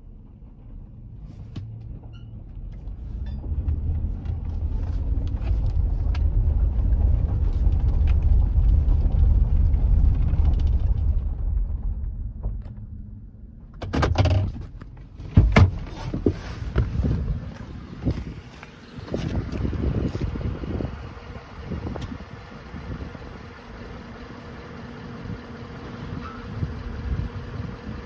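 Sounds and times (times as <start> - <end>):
pickup engine and tyre rumble: 0.0 - 28.0
loud knocks and rustling: 13.8 - 17.1.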